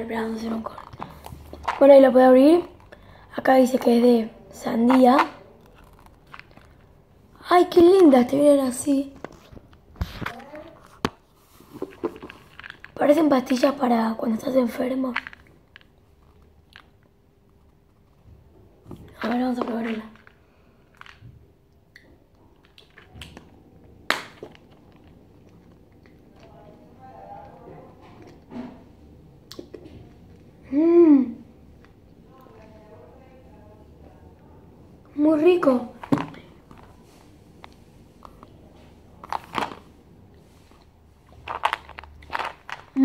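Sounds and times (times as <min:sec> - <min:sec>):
candy crunching: 0:00.2 - 0:07.9, 0:08.9 - 0:28.5, 0:35.9 - 0:43.0.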